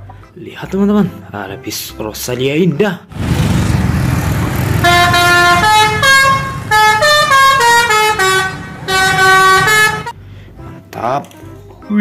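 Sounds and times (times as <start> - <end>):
bus engine running: 3.1 - 10.1
bus musical horn melody: 4.3 - 10.2.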